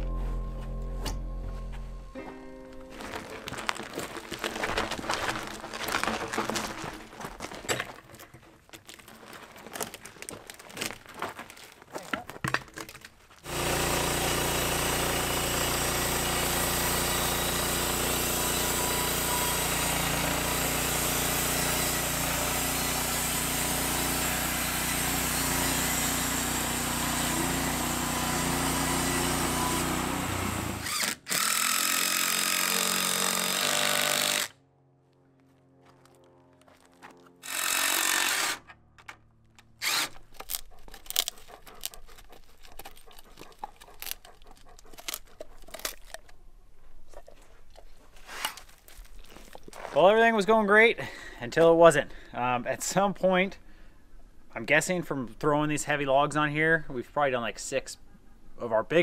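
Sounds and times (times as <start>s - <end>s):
dog gnawing wooden stick: 3.0s - 13.5s, 39.6s - 50.0s
band sawmill cutting log: 13.4s - 34.6s, 37.4s - 38.7s, 39.8s - 46.2s.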